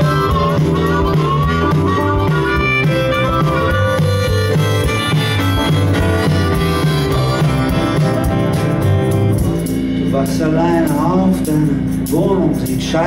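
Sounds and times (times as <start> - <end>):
harmonica playing melody: 0.0 - 10.2
live band with acoustic guitar: 0.0 - 13.0.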